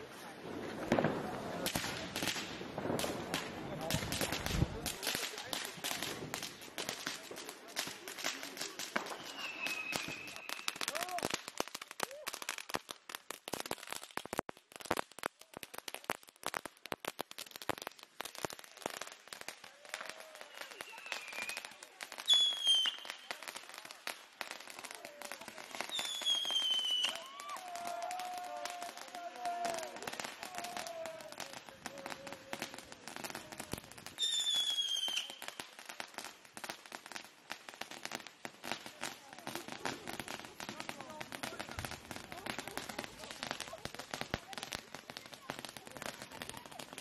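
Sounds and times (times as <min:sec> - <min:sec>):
firecracker bangs and crackles: 0:00.0 - 0:47.0.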